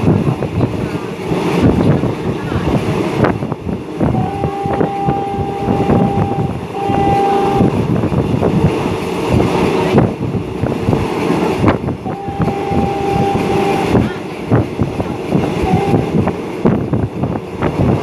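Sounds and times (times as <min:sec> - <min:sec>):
locomotive horn blasts: 0:04.0 - 0:07.8, 0:12.0 - 0:14.2, 0:15.6 - 0:16.2.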